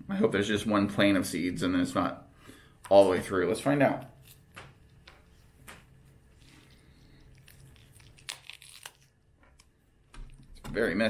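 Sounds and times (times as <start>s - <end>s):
fruit skin tearing: 6.4s - 9.7s
sharp crackles: 7.3s - 9.1s.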